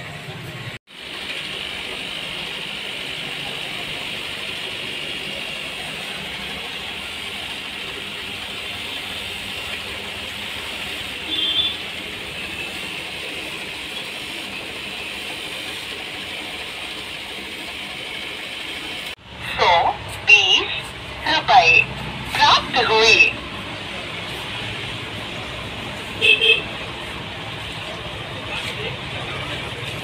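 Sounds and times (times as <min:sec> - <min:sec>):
aquarium aeration hiss and bubbling: 0:00.0 - 0:30.0.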